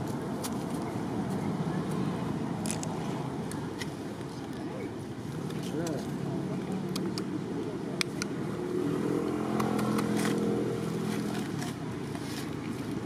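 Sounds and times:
passing vehicle engine hum: 5.4s - 13.0s.

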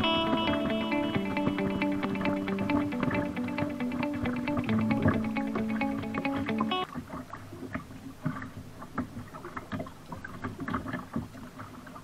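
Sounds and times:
kayak paddle splashing water: 6.5s - 12.0s.

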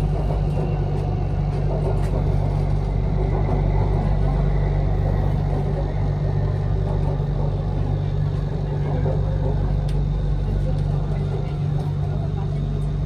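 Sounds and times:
train interior rumble and hum: 0.0s - 13.0s.

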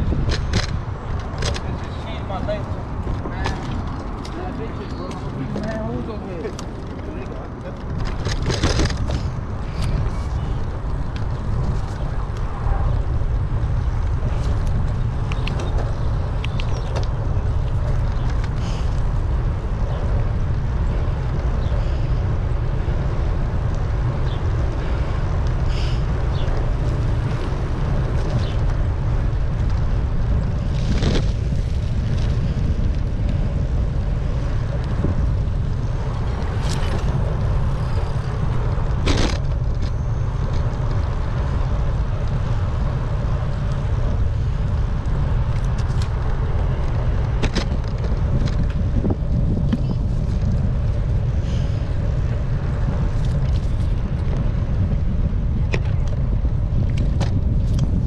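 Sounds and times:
road noise: 0.0s - 58.0s
wind buffeting microphone: 0.0s - 58.0s
sharp clicks and rattles: 0.1s - 12.5s.

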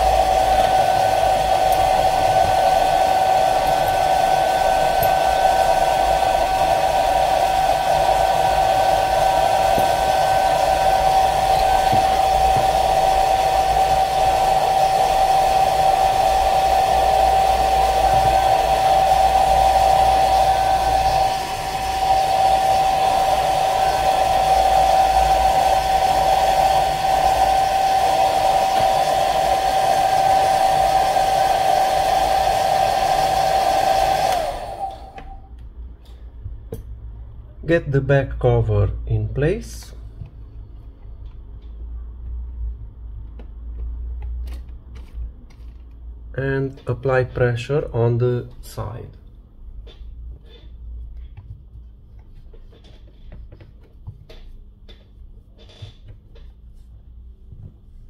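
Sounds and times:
rushing air: 0.0s - 35.5s
hot-air blower whining: 0.0s - 35.6s.

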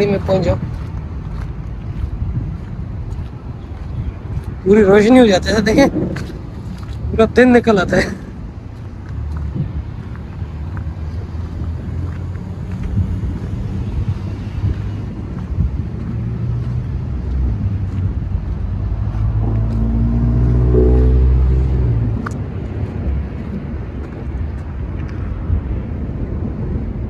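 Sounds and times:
wind buffeting microphone: 0.0s - 27.0s
car passing close by: 16.2s - 23.1s.

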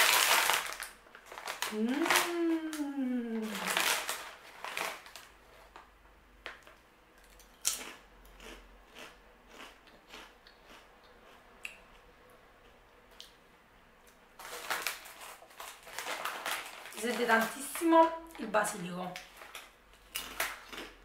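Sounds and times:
crisp crunching: 0.0s - 5.8s, 14.4s - 17.9s, 19.2s - 21.0s.

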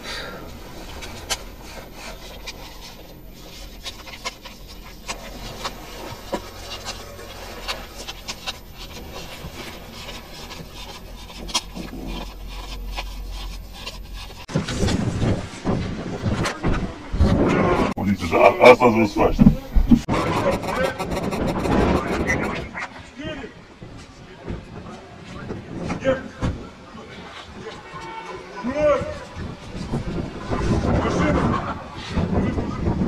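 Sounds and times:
banknotes being handled: 0.5s - 14.5s, 20.3s - 22.4s
fabric rubbing on microphone: 0.5s - 23.0s.

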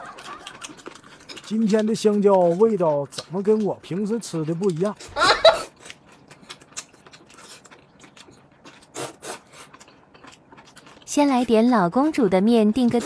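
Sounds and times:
chewing with wet mouth clicks: 0.0s - 13.0s.

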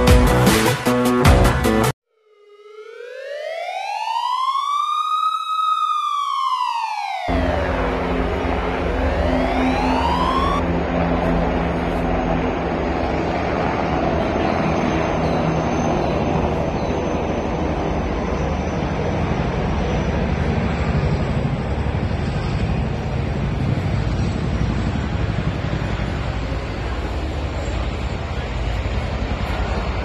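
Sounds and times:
helicopter rotors beating: 6.3s - 30.0s.

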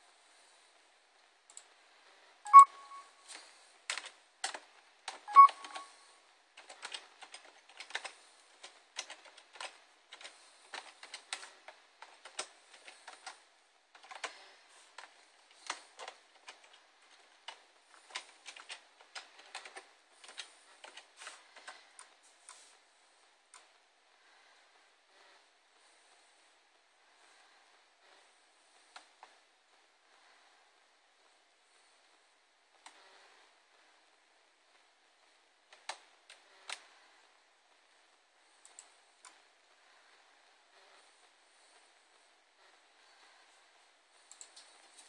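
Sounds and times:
keyboard keystroke clicks: 2.5s - 3.0s, 3.9s - 5.9s.

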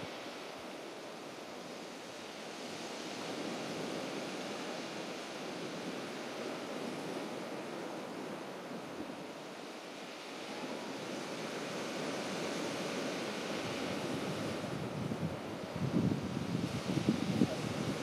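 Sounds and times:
surf washing on shingle beach: 0.0s - 18.0s
wind: 0.0s - 18.0s.

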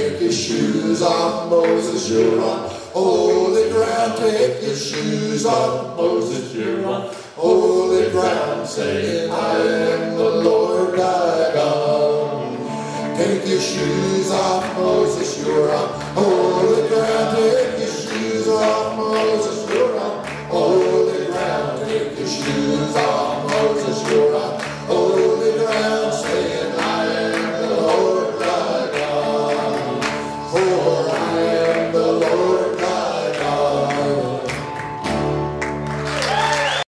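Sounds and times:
men singing together: 0.0s - 34.8s
strummed acoustic guitars: 0.0s - 36.1s
electric guitar: 8.2s - 36.8s.

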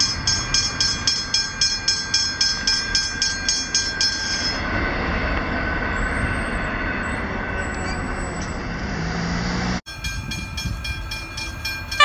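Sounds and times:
level crossing bell ringing: 0.0s - 4.6s
freight train rumble: 0.0s - 12.0s.

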